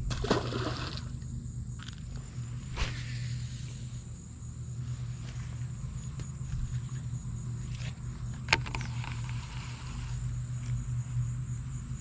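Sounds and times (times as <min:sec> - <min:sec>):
low hum: 0:00.0 - 0:12.0
fishing reel click and whirr: 0:07.8 - 0:10.8.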